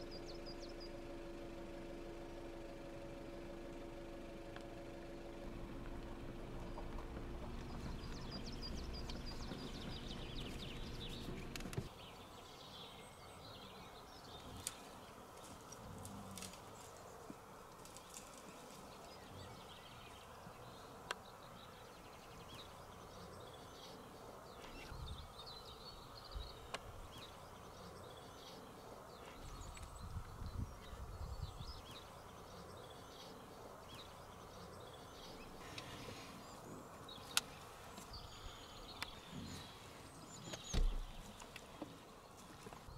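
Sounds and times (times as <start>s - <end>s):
steady low hum: 0.0s - 11.9s
small birds chirping: 0.0s - 42.9s.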